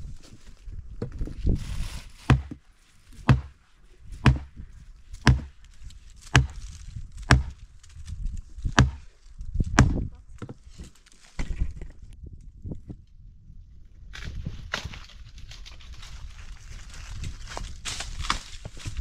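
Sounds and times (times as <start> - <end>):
axe chopping wood: 2.2 - 2.6, 3.2 - 3.6, 4.2 - 4.6, 5.2 - 5.6, 6.2 - 7.6, 8.6 - 9.1, 9.7 - 10.6.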